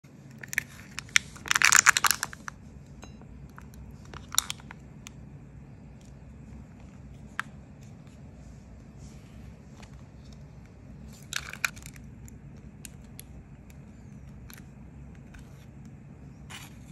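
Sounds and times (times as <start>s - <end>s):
plastic film crinkling: 0.4s - 2.6s.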